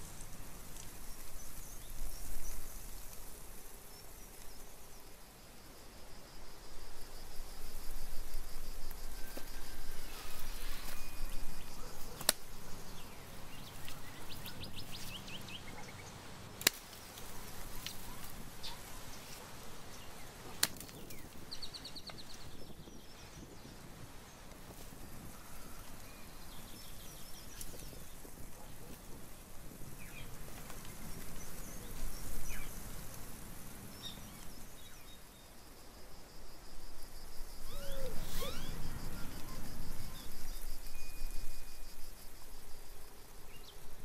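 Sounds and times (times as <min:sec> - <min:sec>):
birds chirping: 0:10.1 - 0:16.4.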